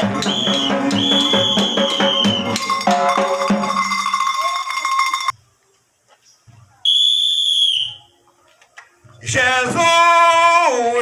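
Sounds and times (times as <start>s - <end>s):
whistle blown: 0.0s - 2.9s, 6.8s - 8.2s.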